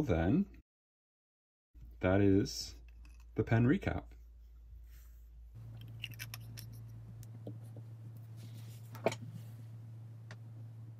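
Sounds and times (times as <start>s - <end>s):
low steady hum: 1.8s - 10.9s.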